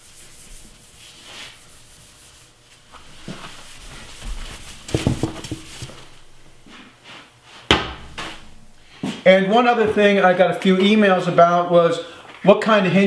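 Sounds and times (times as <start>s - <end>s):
scratchy rubbing on metal: 0.0s - 6.1s
knocks: 4.9s - 6.0s.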